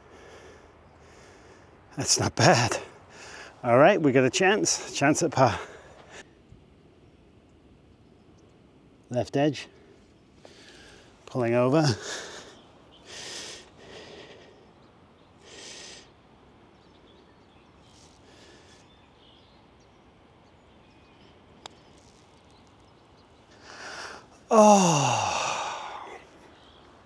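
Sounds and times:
person breathing: 0:00.0 - 0:01.8, 0:03.0 - 0:03.6, 0:10.4 - 0:11.2, 0:12.0 - 0:14.7, 0:18.2 - 0:18.9, 0:23.6 - 0:26.5
person groaning: 0:24.5 - 0:26.3.

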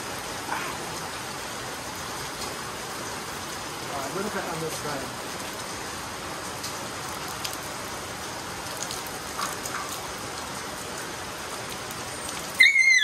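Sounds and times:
water splashing on tiled floor: 0:06.4 - 0:13.0
high wavering voice-like cry: 0:12.6 - 0:13.0.

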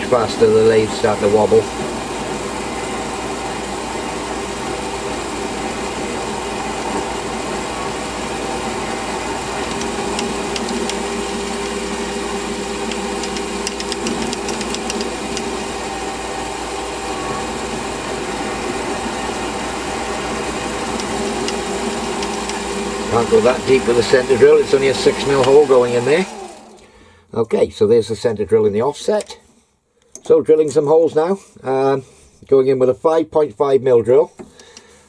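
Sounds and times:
lathe machine hum: 0:00.0 - 0:26.9.

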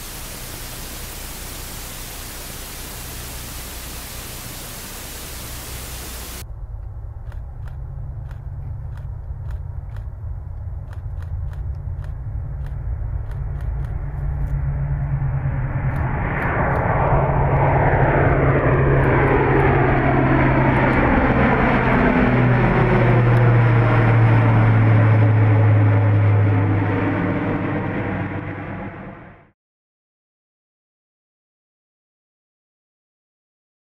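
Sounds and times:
turboprop propeller drone: 0:00.0 - 0:29.5
engine whine sliding down in pitch: 0:13.0 - 0:29.5.

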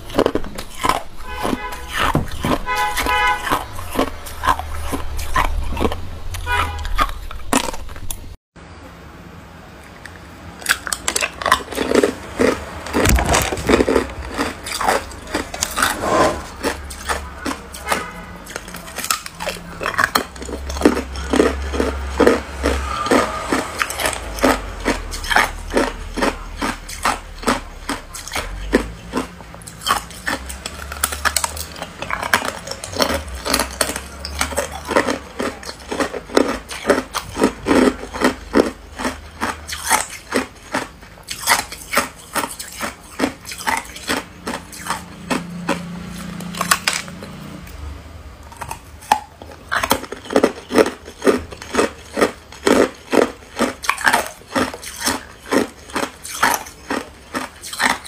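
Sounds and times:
ice cubes crackling and clicking: 0:10.0 - 0:15.8, 0:23.8 - 0:47.1, 0:48.6 - 0:58.0.

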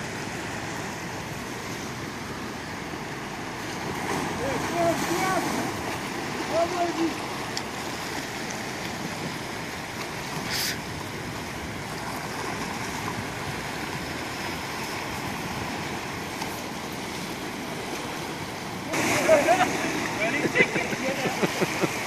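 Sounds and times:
sea surf against rocks: 0:00.0 - 0:22.0
brief hiss: 0:10.5 - 0:10.8.

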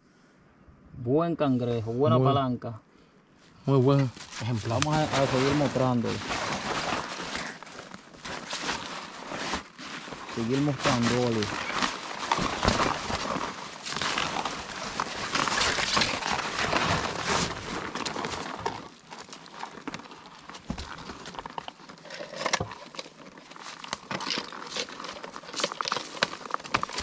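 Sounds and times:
cloth sack rustling on dry leaves: 0:04.0 - 0:27.0
plastic traps knocking and scraping: 0:04.2 - 0:19.0.

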